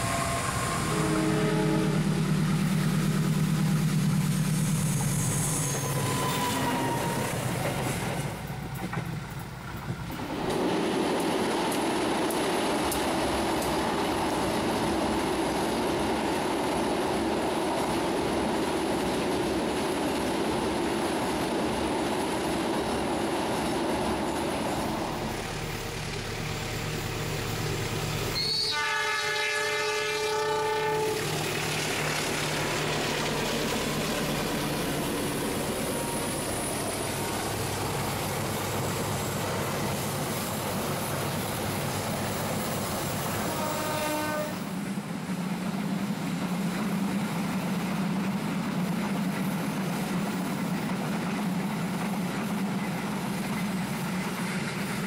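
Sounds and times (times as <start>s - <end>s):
locomotive horn: 0.0s - 2.4s, 28.4s - 31.3s, 43.4s - 44.7s
train engine noise: 0.0s - 55.0s
train wheels on steel bridge: 0.0s - 55.0s.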